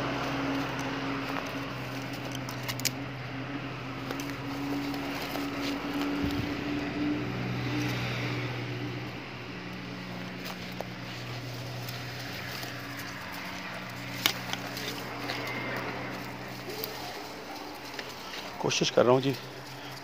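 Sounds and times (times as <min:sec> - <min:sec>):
dry weed stems crackling: 0:00.0 - 0:20.0
road traffic engine hum: 0:00.0 - 0:20.0.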